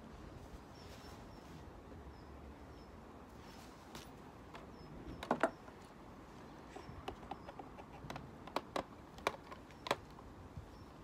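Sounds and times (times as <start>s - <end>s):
hand tools clicking and tapping: 6.8s - 10.2s.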